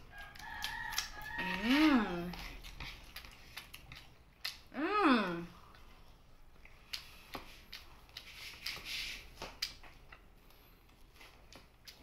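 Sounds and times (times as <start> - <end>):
chewing: 0.0 - 4.7, 5.5 - 12.0
wet mouth clicks and smacks: 2.3 - 4.7.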